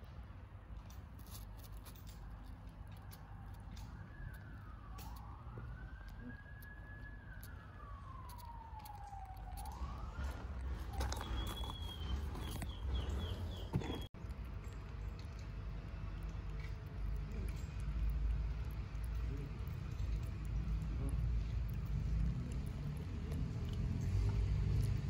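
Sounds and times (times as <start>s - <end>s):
siren wailing: 2.9s - 13.6s
steady low rumble: 4.3s - 25.0s.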